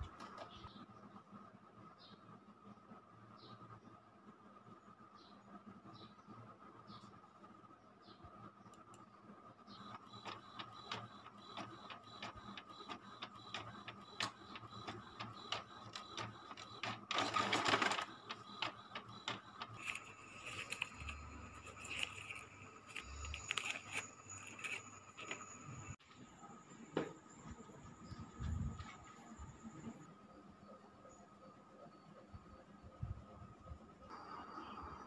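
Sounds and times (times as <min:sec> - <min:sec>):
inkjet printer clicking and whirring: 0:08.7 - 0:26.0.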